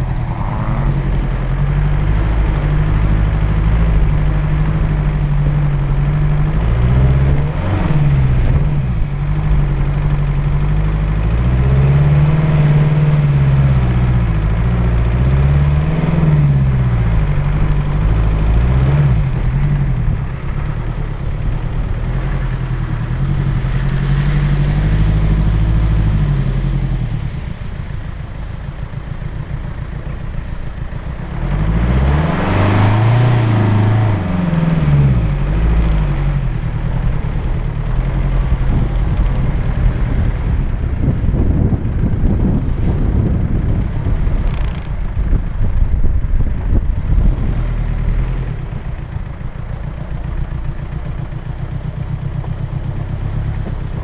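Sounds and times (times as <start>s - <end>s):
off-road engine revving: 0.0s - 54.0s.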